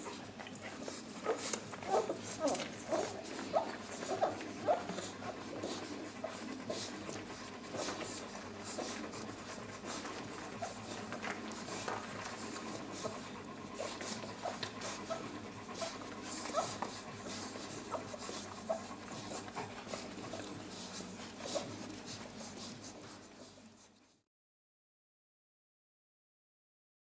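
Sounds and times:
puppies squeaking and suckling: 0.0s - 23.6s
dog panting: 0.0s - 24.2s.

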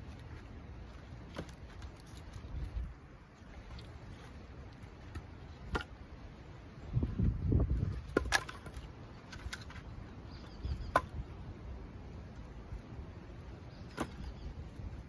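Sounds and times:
firewood knocking together: 5.1s - 5.9s, 7.9s - 9.8s.

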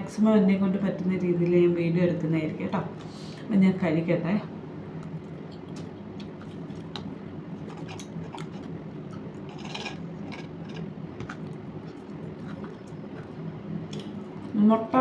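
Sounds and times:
steady low hum: 0.0s - 15.0s
chewing: 5.0s - 14.5s
fork scraping on plate: 9.5s - 10.9s.

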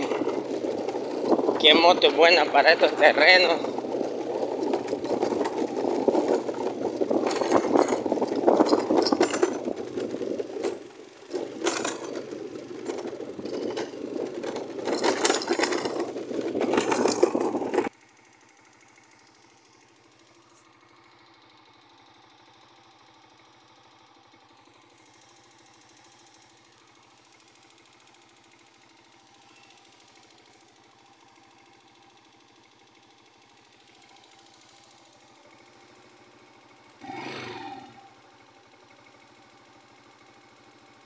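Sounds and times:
wind noise on microphone: 0.0s - 2.4s, 3.6s - 10.8s, 15.0s - 17.9s
small motorcycle engine running: 0.0s - 41.0s.

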